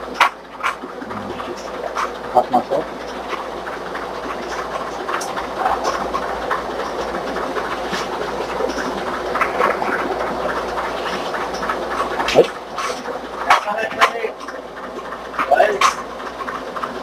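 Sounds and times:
steady rushing hum: 0:00.0 - 0:17.0
kitchen clicks and clatter: 0:15.4 - 0:16.6.

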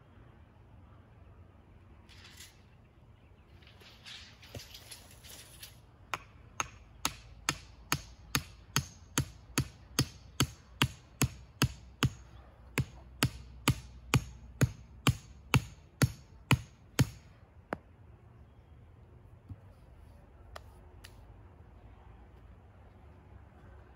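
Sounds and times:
hammer driving wooden stake: 0:04.4 - 0:17.8.

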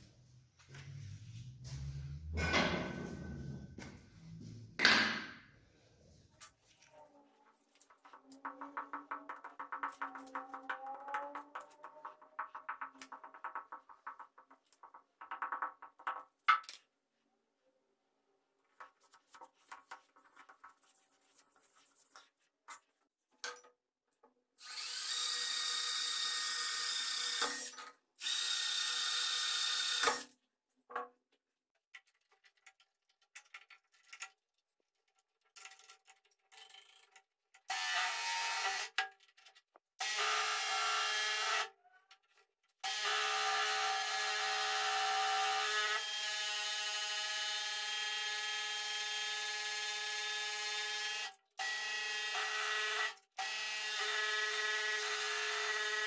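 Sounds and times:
scroll saw running: 0:24.6 - 0:30.2.

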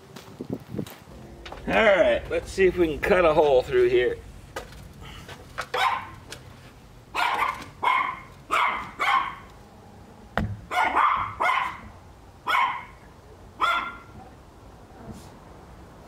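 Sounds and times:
dog barking: 0:05.7 - 0:06.2, 0:07.1 - 0:09.5, 0:10.7 - 0:13.0, 0:13.6 - 0:14.2.

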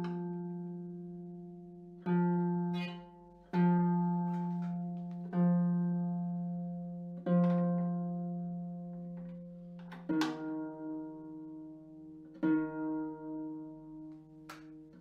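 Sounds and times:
harp string plucked: 0:02.7 - 0:05.0.

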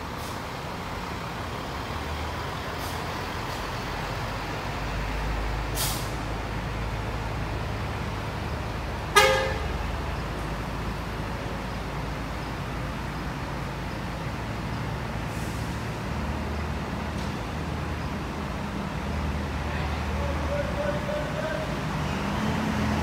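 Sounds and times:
bus engine running: 0:00.0 - 0:23.0
bus horn toot: 0:09.1 - 0:09.8.

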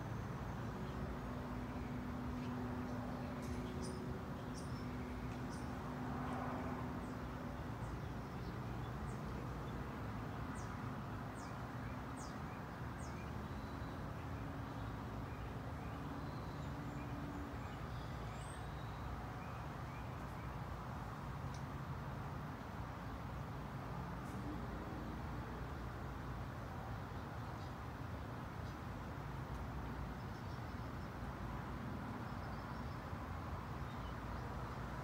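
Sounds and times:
small birds chirping: 0:00.1 - 0:06.0.

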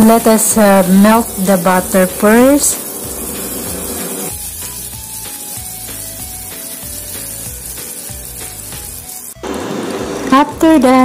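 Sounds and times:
butter sizzling in a pot: 0:00.0 - 0:11.0
background music melody: 0:03.7 - 0:11.0.

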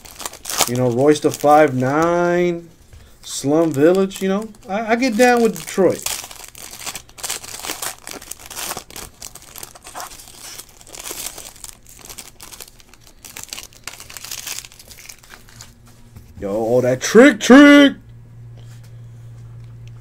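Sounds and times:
foil wrapper tearing and crinkling: 0:00.0 - 0:02.6, 0:03.3 - 0:15.8.

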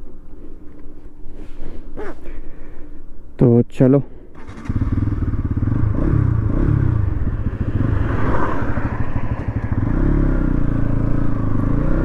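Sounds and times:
motorcycle engine accelerating: 0:04.4 - 0:12.0.

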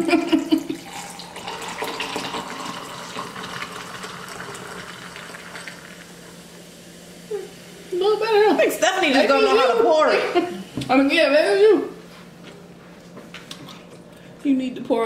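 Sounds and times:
soda pouring into glass of ice: 0:00.8 - 0:06.4.

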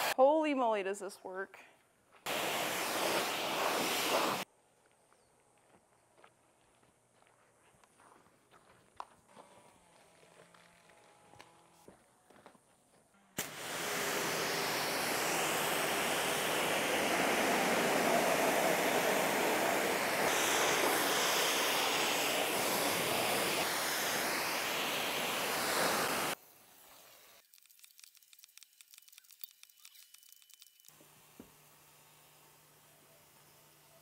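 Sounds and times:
pressure washer spraying water: 0:02.3 - 0:04.4, 0:13.4 - 0:31.4.

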